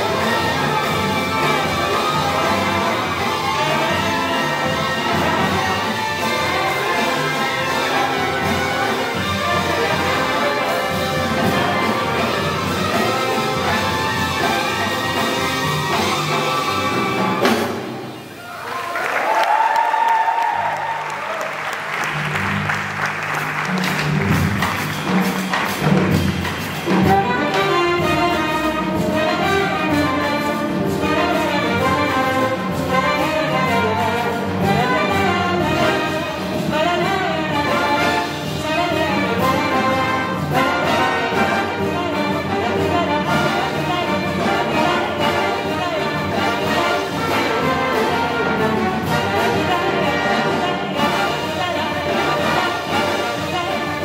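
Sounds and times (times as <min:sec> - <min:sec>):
jazz big band with brass: 0:00.0 - 0:54.0
applause: 0:18.6 - 0:25.0.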